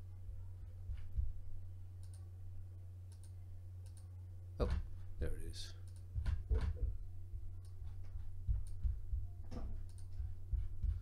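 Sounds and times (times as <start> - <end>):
steady low hum: 0.0 - 11.0
computer mouse clicks: 2.0 - 2.3, 3.1 - 4.8, 5.8 - 6.8, 9.8 - 10.2.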